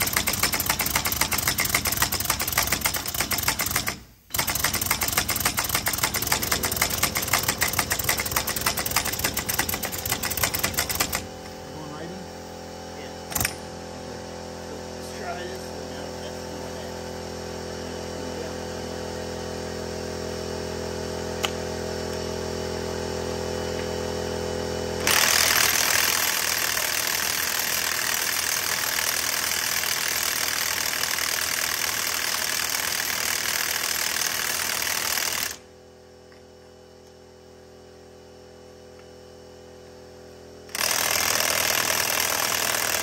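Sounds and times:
air impact wrench hammering: 0.0s - 11.6s, 13.3s - 13.9s, 25.0s - 35.7s, 40.7s - 43.0s
air compressor motor drone: 0.0s - 43.0s.

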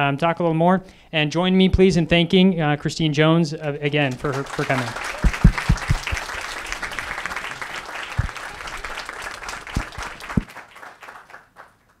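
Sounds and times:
audience applauding: 4.0s - 12.0s
low thumps: 5.2s - 6.1s.

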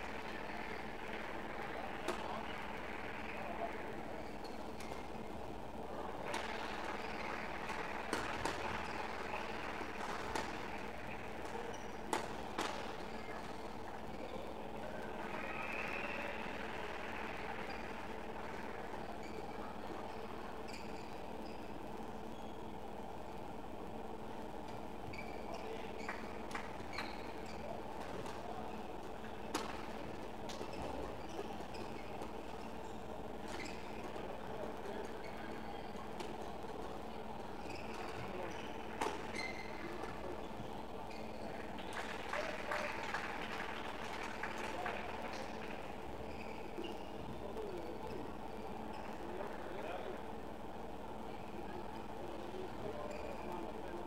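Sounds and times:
hall background noise: 0.0s - 54.0s
shoes squeaking on court floor: 30.5s - 34.2s, 35.2s - 40.2s.

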